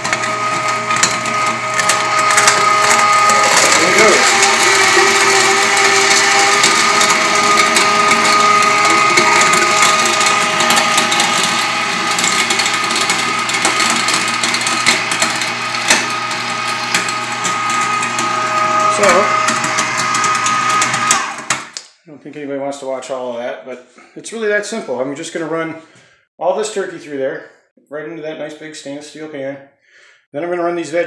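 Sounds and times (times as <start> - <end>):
electric meat grinder whine: 0.0 - 21.8.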